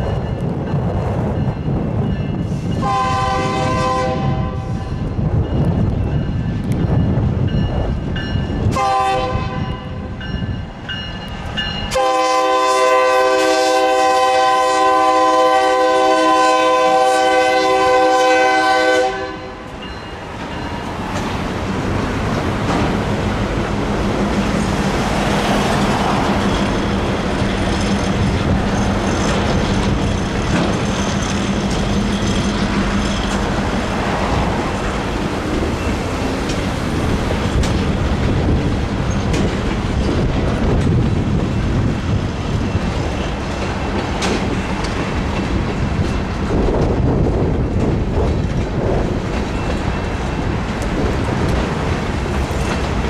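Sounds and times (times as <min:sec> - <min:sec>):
freight train rumbling: 0:00.0 - 0:53.0
crossing bells ringing: 0:04.8 - 0:08.7, 0:09.6 - 0:12.4, 0:19.2 - 0:21.2
wheels clacking over rail joints: 0:19.6 - 0:53.0.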